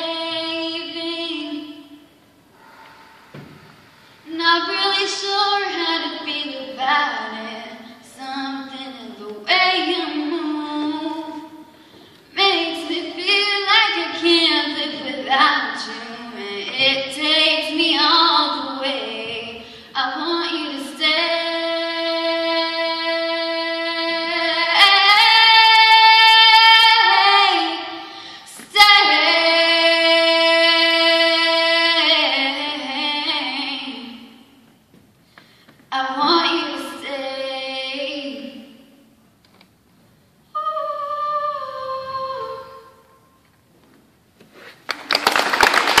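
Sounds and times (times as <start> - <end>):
girl singing into a microphone: 0.0 - 39.2, 40.4 - 43.4
audience clapping: 44.7 - 46.0.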